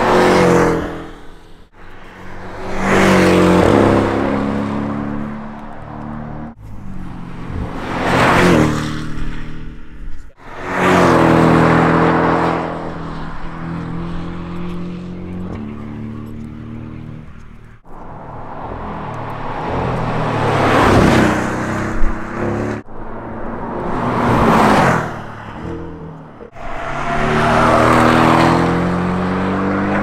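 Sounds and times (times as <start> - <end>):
sports car driving by: 10.5 - 30.0.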